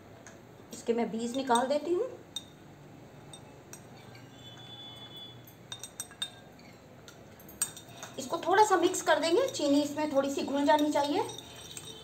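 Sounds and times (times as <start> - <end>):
metal spoon clinking glass bowl: 1.2 - 1.8, 2.4 - 2.6, 3.3 - 12.0.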